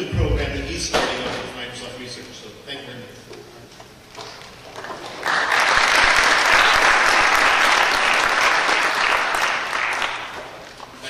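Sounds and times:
audience applauding: 0:04.7 - 0:10.7.

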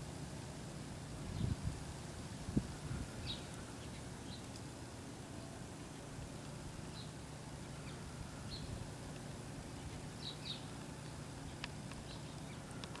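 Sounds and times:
low background hum: 0:00.0 - 0:13.0
faint bird chirps: 0:02.7 - 0:04.5, 0:06.9 - 0:08.8, 0:09.7 - 0:13.0
sharp clicks: 0:10.8 - 0:13.0.

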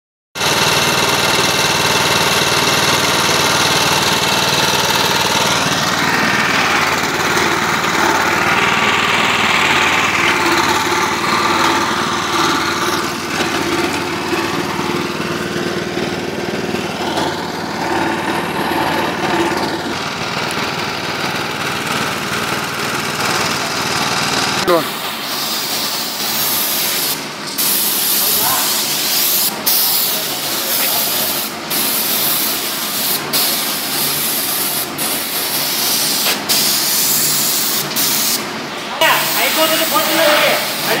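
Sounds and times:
small petrol engine running: 0:00.4 - 0:41.0.

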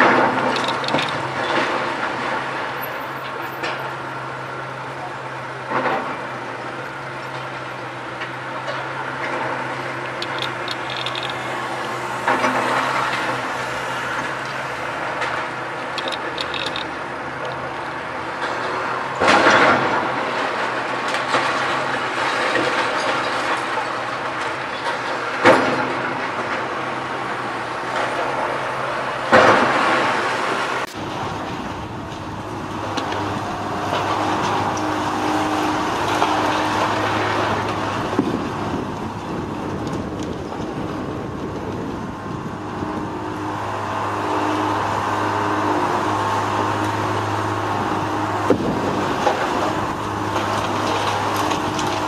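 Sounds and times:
debris clattering: 0:00.0 - 0:02.2
diesel engine running: 0:00.0 - 0:52.0.

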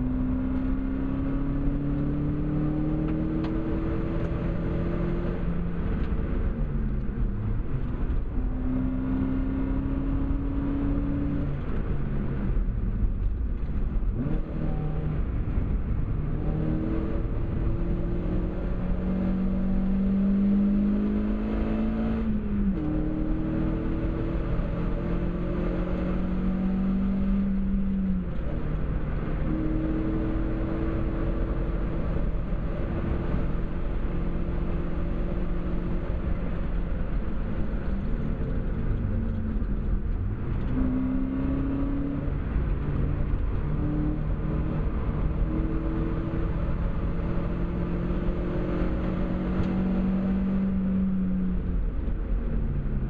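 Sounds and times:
car engine revving hard: 0:16.3 - 0:28.0, 0:40.6 - 0:51.5.

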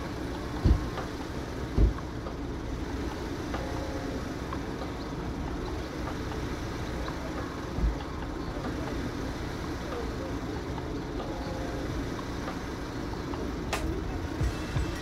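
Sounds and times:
road traffic rumble: 0:00.0 - 0:15.0
low thumps: 0:00.6 - 0:01.1, 0:01.7 - 0:02.1.

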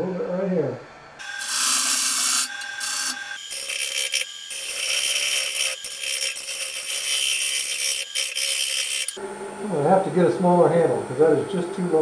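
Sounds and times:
bowl gouge cutting wood: 0:01.2 - 0:09.2
wood lathe running: 0:01.2 - 0:09.2.

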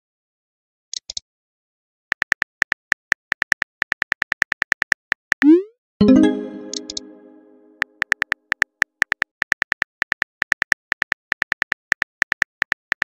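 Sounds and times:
ringing musical chord: 0:06.0 - 0:07.8.

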